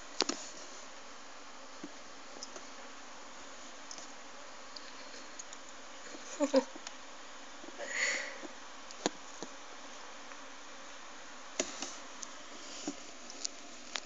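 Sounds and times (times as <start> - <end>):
faint hiss: 0.0 - 14.0.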